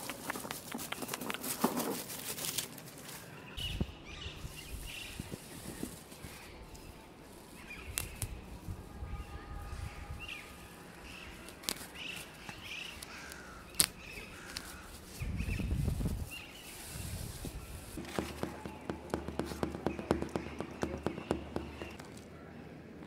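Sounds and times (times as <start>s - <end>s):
small birds chirping: 0.0s - 1.6s, 3.0s - 22.8s
fingers scratching dry fibres: 11.1s - 15.3s, 15.9s - 22.2s.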